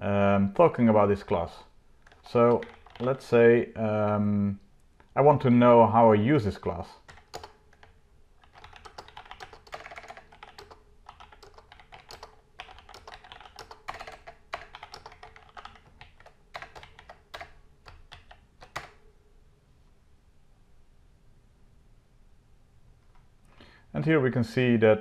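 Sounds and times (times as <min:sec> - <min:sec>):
keyboard typing clicks: 0:02.0 - 0:03.2, 0:07.0 - 0:19.0.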